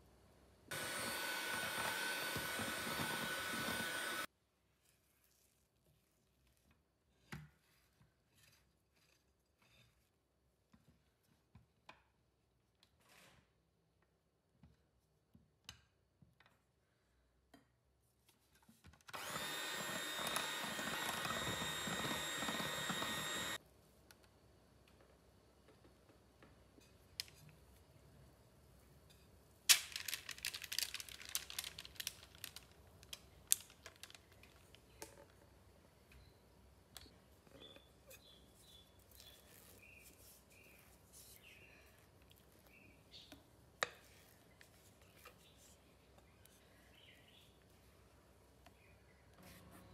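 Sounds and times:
parchment paper crinkling: 29.7s - 34.9s.

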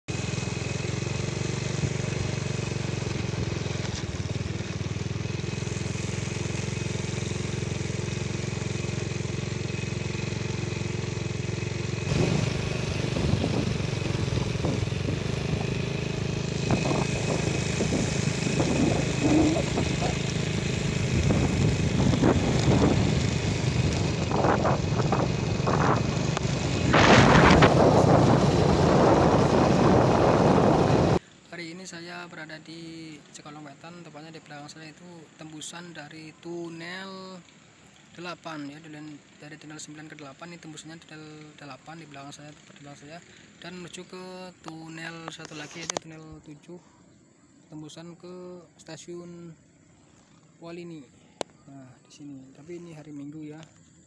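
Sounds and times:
small motorcycle engine running: 0.1s - 47.6s
road knocks and rumble: 0.2s - 31.2s
loud rushing noise: 12.1s - 31.2s.

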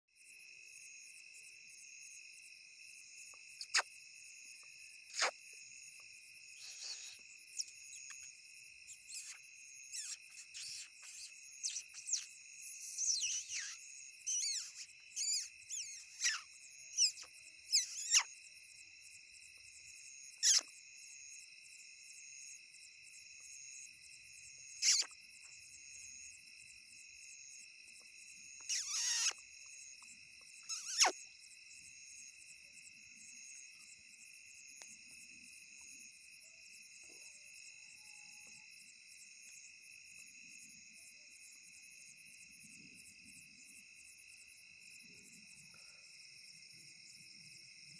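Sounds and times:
crickets chirring: 0.2s - 47.9s
high squeaks sliding downward: 28.7s - 29.4s, 30.7s - 31.1s.

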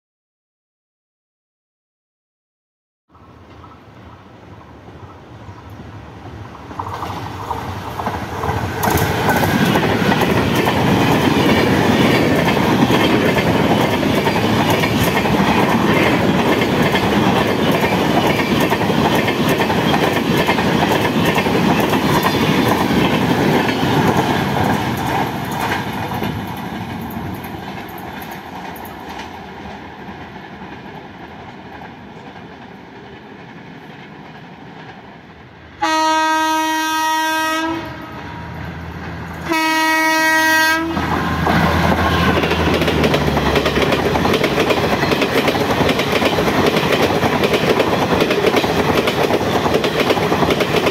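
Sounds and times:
train rumble: 3.1s - 50.9s.

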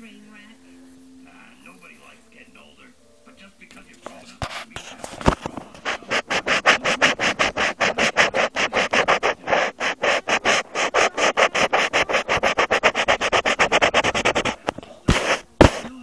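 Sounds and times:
scratching on paper: 4.0s - 16.0s.

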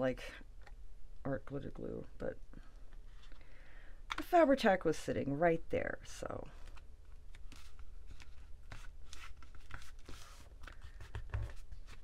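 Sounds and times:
paper rustling: 6.6s - 12.0s.

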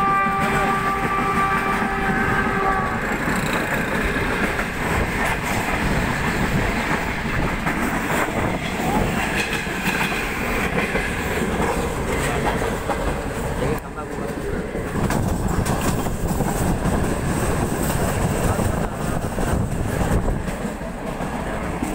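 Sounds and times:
train horn: 0.0s - 3.5s
clickety-clack of rail joints: 0.0s - 21.9s
train wheels rumbling on rails: 0.0s - 21.9s.

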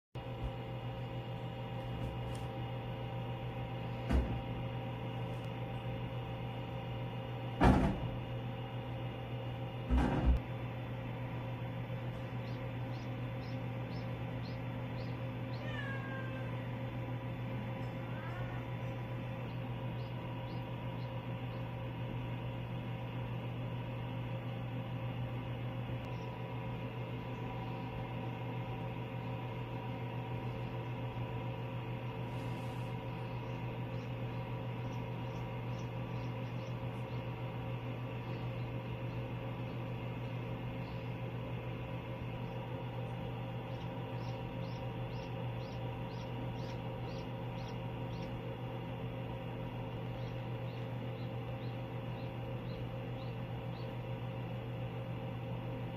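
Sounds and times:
low electrical hum: 0.2s - 55.9s
duckling peeping: 11.6s - 23.7s, 26.0s - 55.6s.

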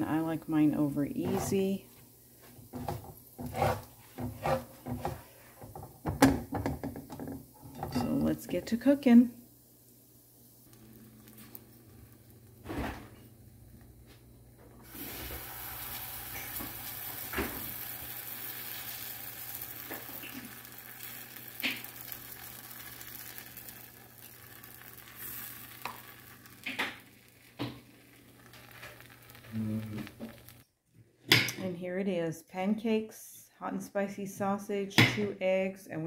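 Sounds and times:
pancakes sizzling in a pan: 9.1s - 13.3s, 14.8s - 30.6s.

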